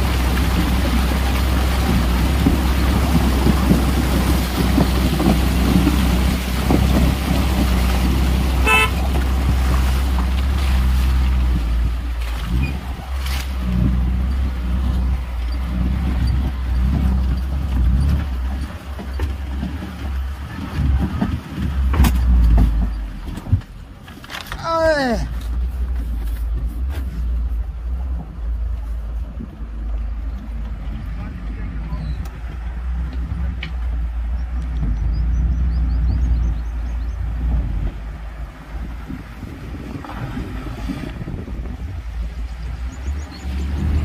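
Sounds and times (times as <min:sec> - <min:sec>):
tyres on stony riverbed: 0:00.0 - 0:44.0
vehicle engine running: 0:00.0 - 0:44.0
water splashing against wheel: 0:00.0 - 0:44.0
car horn toot: 0:08.6 - 0:09.1.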